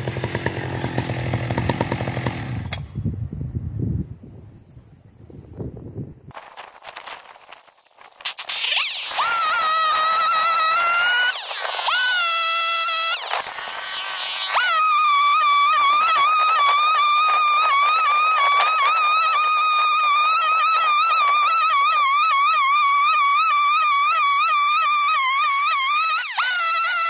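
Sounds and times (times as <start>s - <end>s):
chainsaw cutting log: 0.0s - 2.8s, 8.3s - 27.0s.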